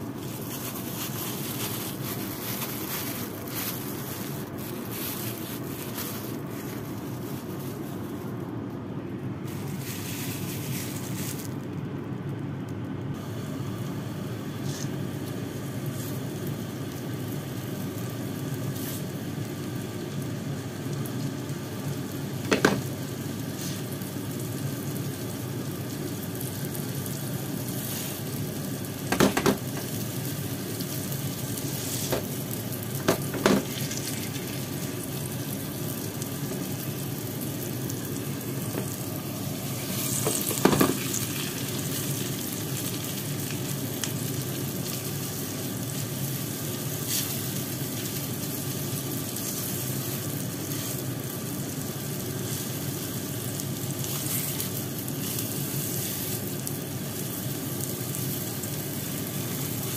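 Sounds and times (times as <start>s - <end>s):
patties sizzling in oil: 0.0s - 8.6s, 9.3s - 12.5s, 13.1s - 59.9s.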